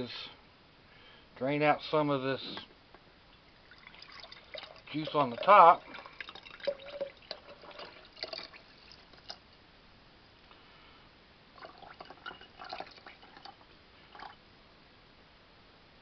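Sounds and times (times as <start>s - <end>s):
liquid trickling and dripping: 3.3s - 9.5s, 11.6s - 14.4s.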